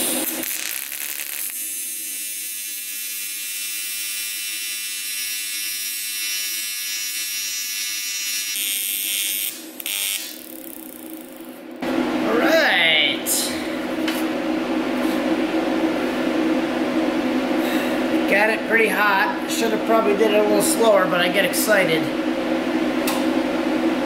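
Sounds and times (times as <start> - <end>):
welding arc buzzing: 0.0 - 12.5.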